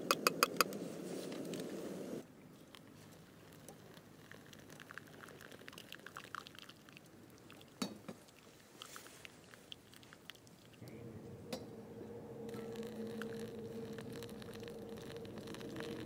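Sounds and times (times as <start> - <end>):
wet coffee grounds crackling: 0.0 - 10.9, 12.4 - 16.0
hot water pouring onto coffee: 3.4 - 9.3, 12.4 - 16.0.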